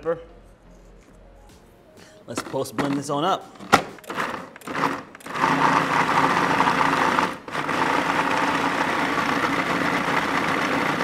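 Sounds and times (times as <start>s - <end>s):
food processor running: 4.1s - 11.0s.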